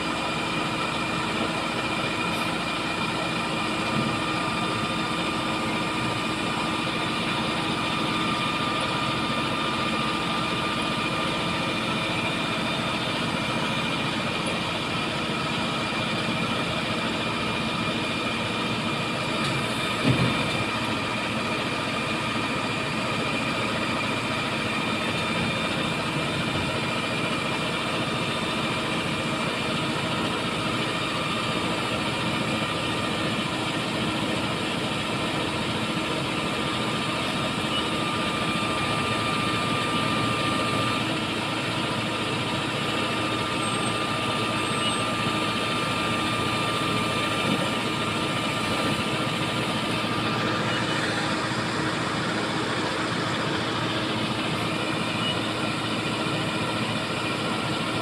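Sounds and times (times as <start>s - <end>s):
diesel engine running under load: 0.0s - 58.0s.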